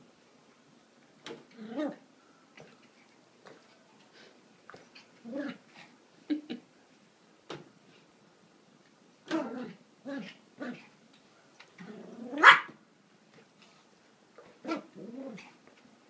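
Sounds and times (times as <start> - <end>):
dog play-barking and growling: 1.2 - 3.8, 4.7 - 6.0, 9.2 - 11.0, 11.6 - 12.8, 14.4 - 15.8.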